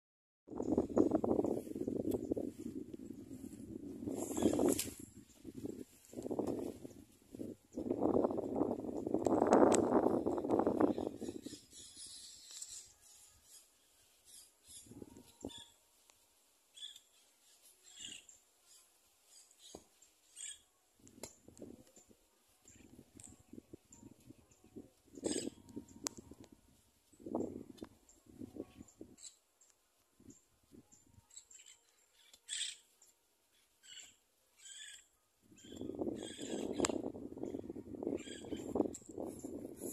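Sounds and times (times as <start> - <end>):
bird chirps: 10.4 - 15.8, 16.7 - 20.8, 22.6 - 26.4, 28.1 - 38.9.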